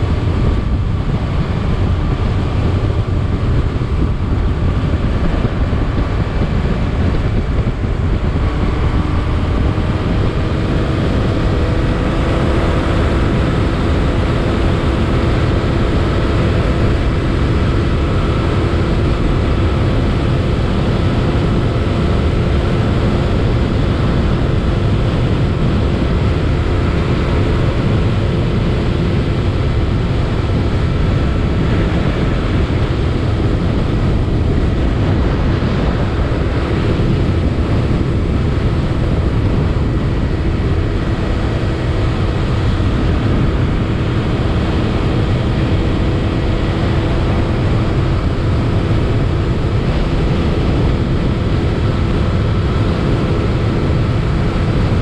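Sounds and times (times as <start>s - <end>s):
faint motorcycle engine hum: 0.0s - 55.0s
road rumble: 0.0s - 55.0s
wind rush on microphone: 0.0s - 55.0s.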